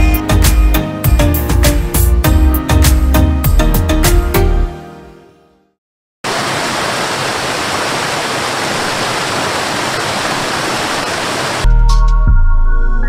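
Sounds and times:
loud music: 0.0s - 4.7s
waterfall rushing over rocks: 6.3s - 11.7s.

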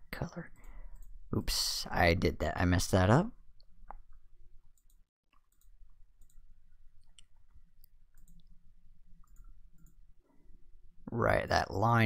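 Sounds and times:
faint mouse clicks: 4.8s - 6.4s, 7.0s - 8.6s, 9.2s - 10.0s
low steady hum: 5.4s - 12.0s.

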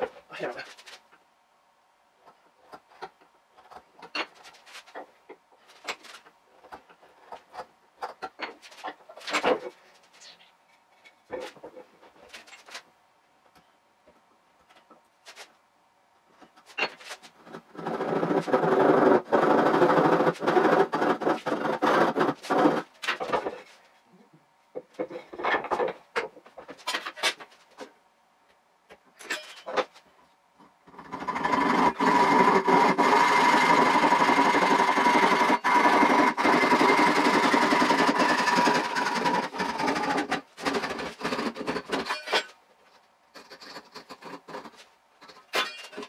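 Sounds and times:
hand saw rasping through wood: 17.7s - 22.9s, 31.2s - 42.0s.

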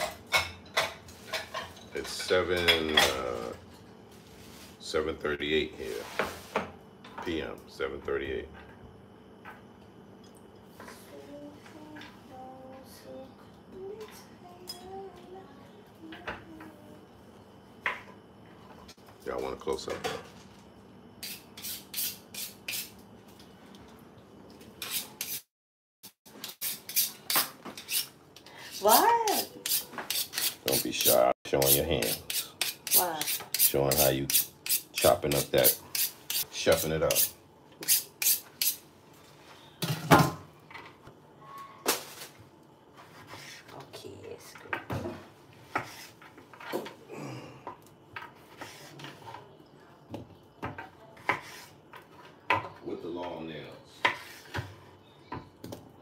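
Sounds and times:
knife scraping through sharpener: 21.2s - 22.9s, 24.8s - 25.5s, 26.4s - 38.8s.

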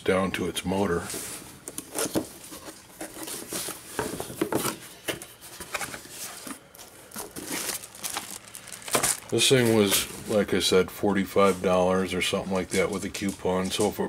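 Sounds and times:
plastic wrap crinkling: 5.8s - 10.6s.

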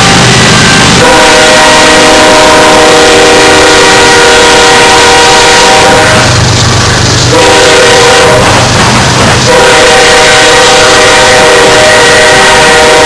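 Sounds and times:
locomotive horn blast: 1.0s - 6.3s, 7.3s - 8.7s, 9.5s - 13.0s
freight cars rumbling and clattering: 6.0s - 9.8s.

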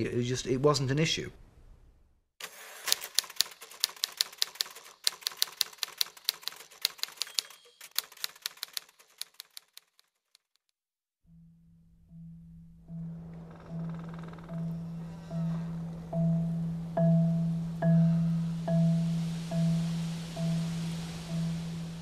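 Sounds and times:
typewriter keys clacking: 2.9s - 10.5s
low steady tone: 11.3s - 22.0s.

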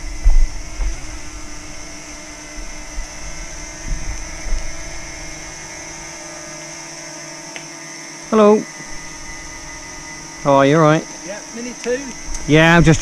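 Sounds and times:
low rumbling buffets: 0.0s - 7.1s, 8.2s - 13.0s
drone propellers whining: 0.0s - 13.0s.

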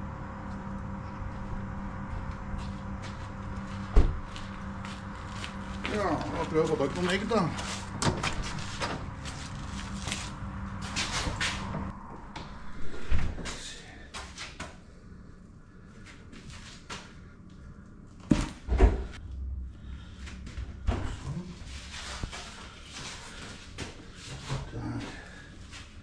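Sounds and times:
low hum: 0.0s - 26.0s
cabinet door opening and shutting: 18.7s - 19.1s.

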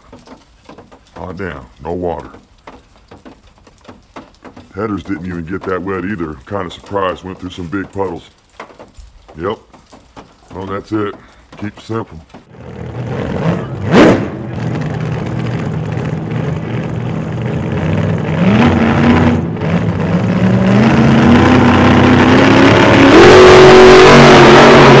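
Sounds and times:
engine revving: 12.5s - 25.0s.

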